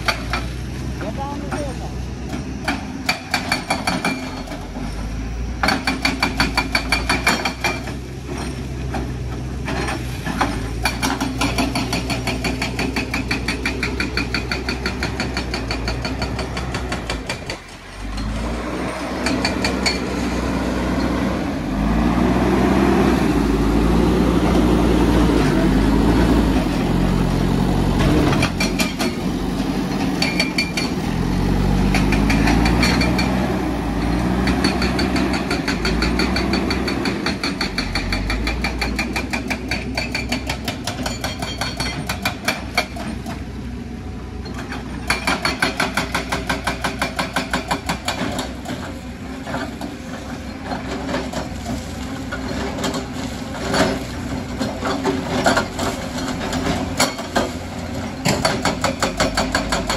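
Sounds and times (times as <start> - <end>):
backhoe diesel engine under load: 0.0 - 59.9.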